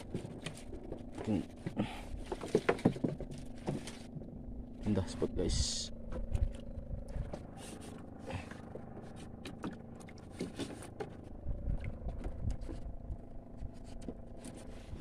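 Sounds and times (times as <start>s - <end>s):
knocks against wooden hull: 0.0s - 4.3s
small boat engine droning: 0.0s - 15.0s.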